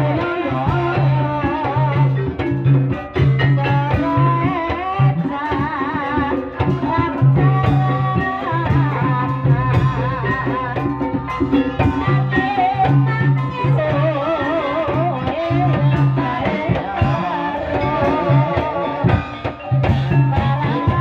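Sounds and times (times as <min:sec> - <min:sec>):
drum strokes: 0:00.0 - 0:21.0
gamelan music: 0:00.0 - 0:21.0.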